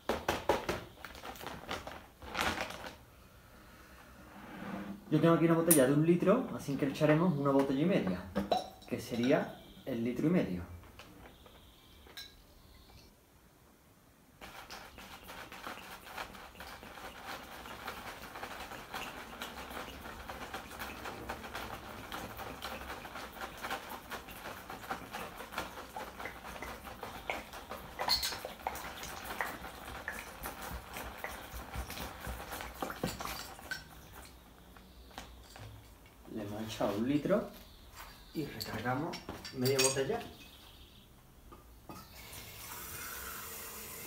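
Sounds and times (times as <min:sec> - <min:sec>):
water pouring into plastic bag: 0:00.7 - 0:03.1, 0:14.4 - 0:35.4.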